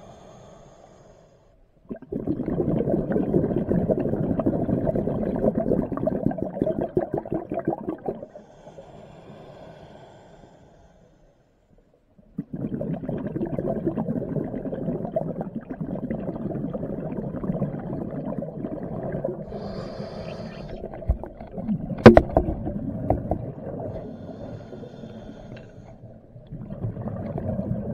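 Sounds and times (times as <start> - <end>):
underwater air bubbles gurgling: 1.9 - 8.6, 12.2 - 27.9.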